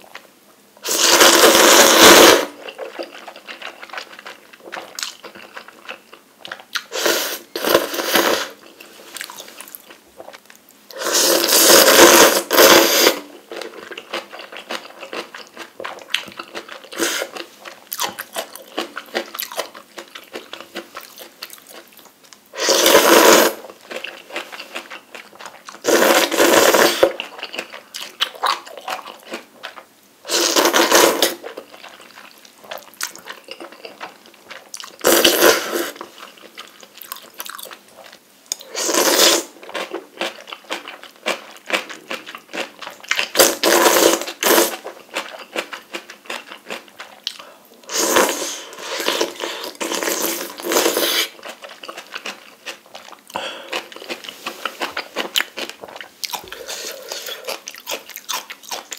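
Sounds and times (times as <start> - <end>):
loud noodle slurps: 0.8 - 2.6, 6.9 - 8.6, 10.9 - 13.3, 16.9 - 17.4, 22.6 - 23.7, 25.8 - 27.2, 30.3 - 31.4, 35.0 - 36.0, 38.7 - 39.6, 43.2 - 44.8, 47.9 - 51.4
chewing and wet mouth sounds: 2.6 - 6.9, 8.6 - 10.9, 13.5 - 22.4, 23.8 - 29.9, 31.4 - 35.2, 35.9 - 38.7, 39.6 - 58.9.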